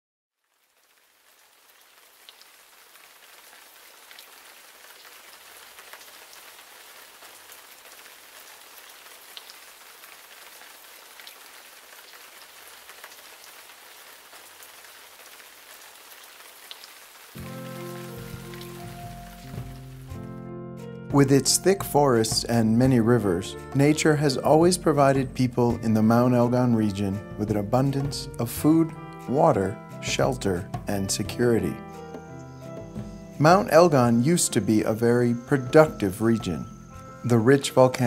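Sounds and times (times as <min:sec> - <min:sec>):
steady rain on wet ground: 0:00.4 - 0:20.2
music: 0:17.4 - 0:38.0.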